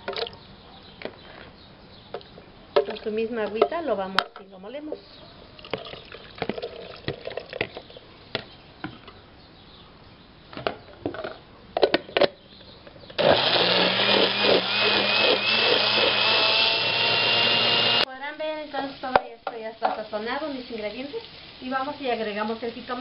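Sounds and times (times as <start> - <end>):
blender running with high whine: 13.2 - 18.1.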